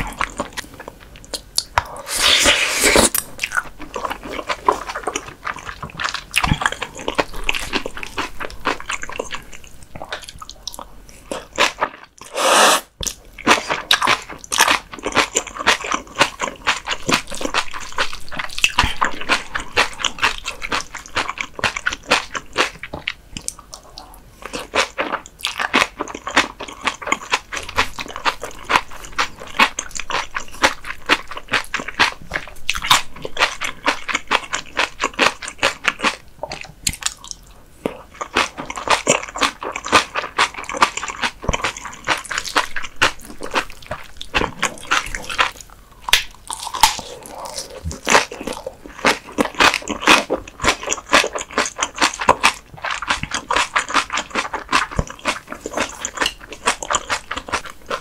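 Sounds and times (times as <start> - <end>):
brief loud hiss: 12.3 - 12.9
wet crunching chewing: 13.0 - 58.0.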